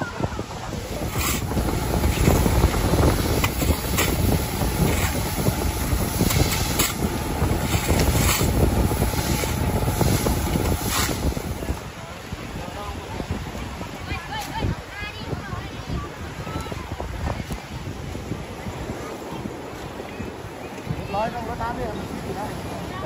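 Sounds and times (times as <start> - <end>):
wind buffeting microphone: 0.0 - 23.0
hose water jetting onto pavement: 0.2 - 12.3
fire truck engine and pump running: 0.8 - 11.8.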